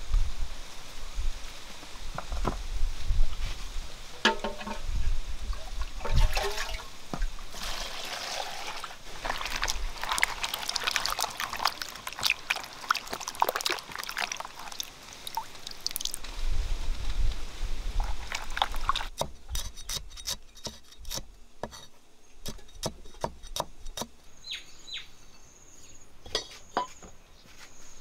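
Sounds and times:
water dripping: 5.5 - 16.4
water pouring: 5.5 - 16.4, 18.0 - 19.2
hands splashing in basin of water: 6.0 - 6.9.

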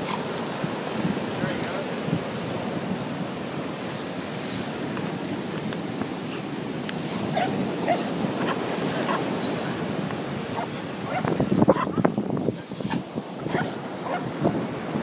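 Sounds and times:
ocean surf: 0.0 - 15.0
wind: 0.0 - 15.0
dog yipping and whining: 6.2 - 12.0, 12.6 - 14.6.

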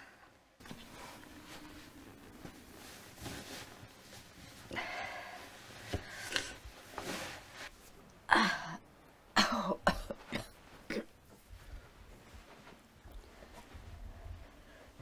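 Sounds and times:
person coughing: 9.4 - 11.1.

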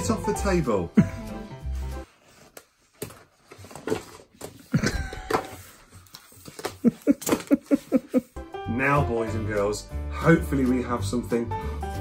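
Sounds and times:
paper sheets rustling on table: 1.8 - 8.3.

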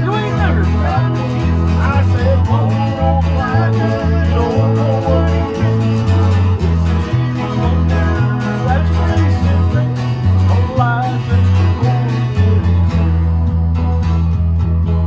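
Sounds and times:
bass line: 0.0 - 15.0
guitars playing country tune: 0.0 - 15.0.

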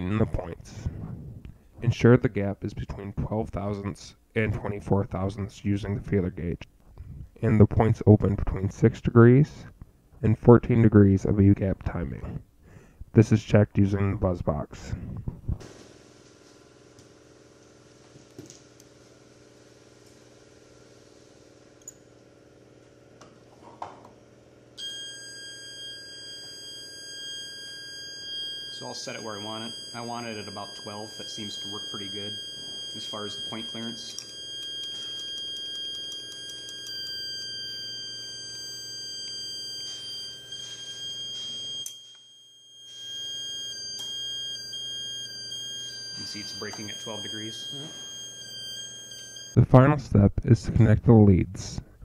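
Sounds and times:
click: 21.8 - 22.0
steady high-pitched buzz tone: 24.8 - 49.6.

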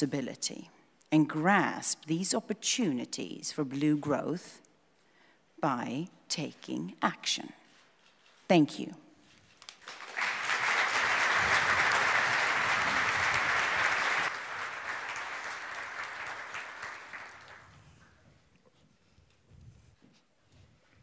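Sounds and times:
audience applauding: 9.7 - 17.8.

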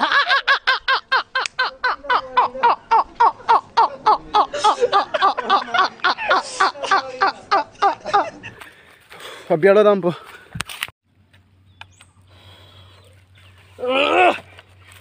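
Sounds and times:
men laughing hard: 0.0 - 8.8.

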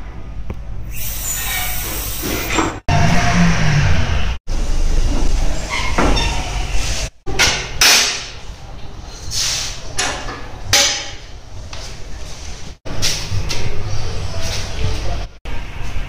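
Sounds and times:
low workshop noise: 0.0 - 16.0
metallic clanks and knocks: 7.3 - 8.4.

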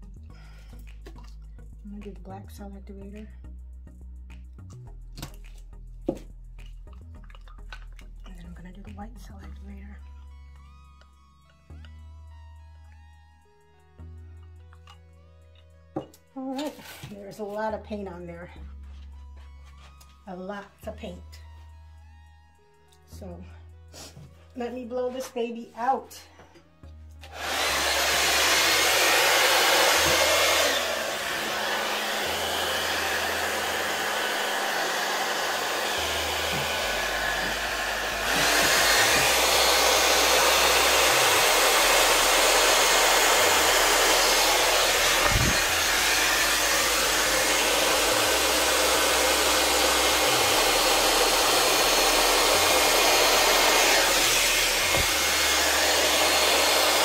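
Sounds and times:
hair dryer blowing: 27.2 - 57.0.

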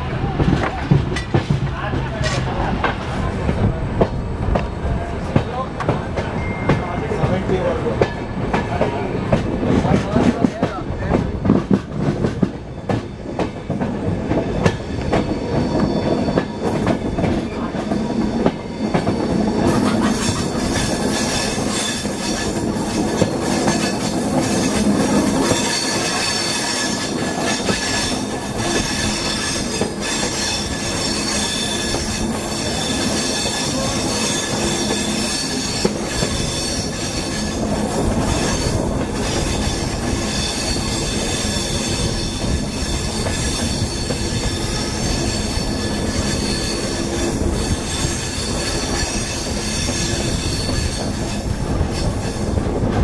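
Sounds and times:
train wheels rumbling on rails: 0.0 - 53.0
wheel flanges squealing: 14.7 - 52.6.

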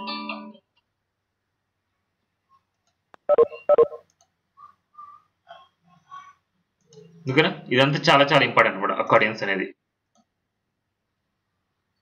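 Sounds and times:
faint blips: 3.2 - 5.3
short electronic beeps: 3.3 - 4.0.

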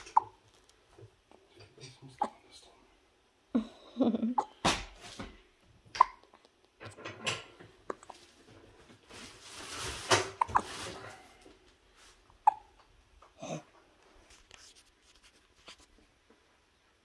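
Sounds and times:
baby hiccuping: 0.0 - 0.4, 2.2 - 2.4, 4.4 - 4.6, 5.9 - 6.4, 7.8 - 8.1, 10.4 - 10.7, 12.4 - 12.8
rustling from handling: 8.1 - 12.2.

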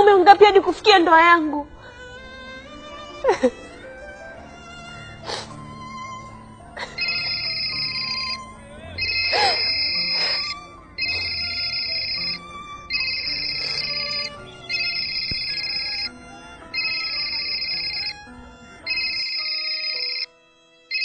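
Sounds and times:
phone ringtone: 6.8 - 18.2, 18.8 - 20.3.

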